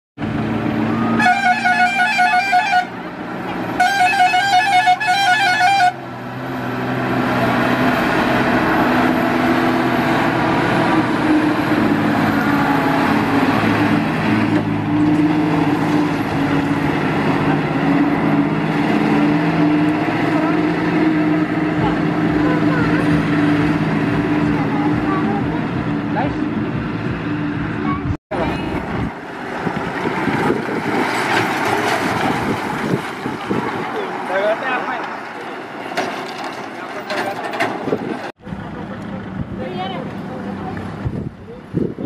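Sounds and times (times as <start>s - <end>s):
diesel truck engine running: 0.2s - 42.0s
warbling truck air horn: 1.0s - 3.0s, 3.8s - 6.0s.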